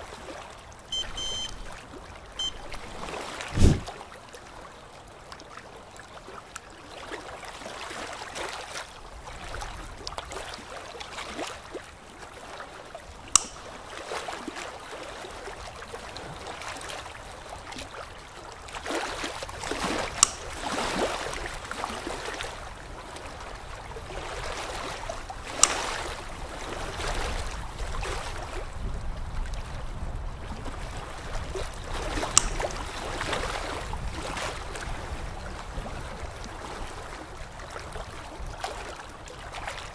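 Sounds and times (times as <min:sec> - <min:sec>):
metal instruments clicking on brackets: 0:13.4 - 0:13.7, 0:20.2 - 0:20.5, 0:32.4 - 0:32.7.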